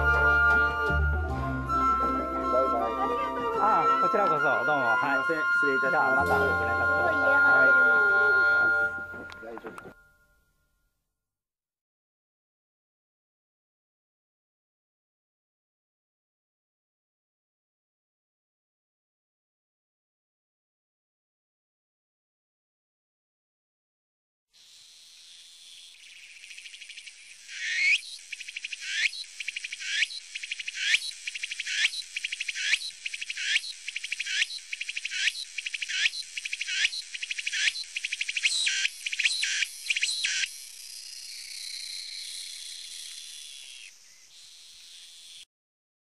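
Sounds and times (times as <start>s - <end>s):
cicada buzzing: 24.6s - 45.5s.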